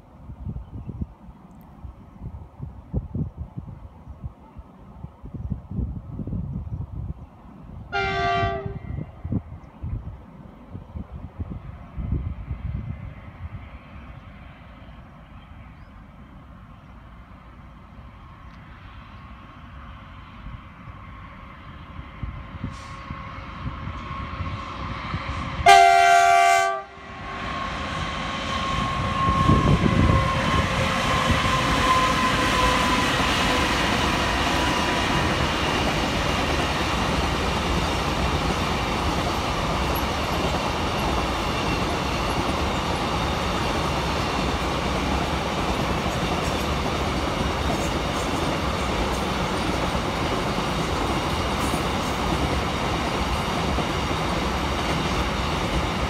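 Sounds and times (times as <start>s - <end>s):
rumble and clatter of train wagons: 0.0s - 56.0s
train horn blast: 7.9s - 9.1s, 25.6s - 27.8s, 28.5s - 33.2s.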